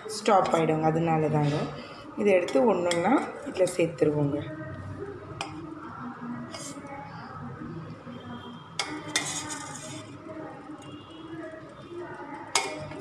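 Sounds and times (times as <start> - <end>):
spoon clinking against metal pot: 2.4 - 3.8, 8.8 - 10.1, 12.4 - 13.0.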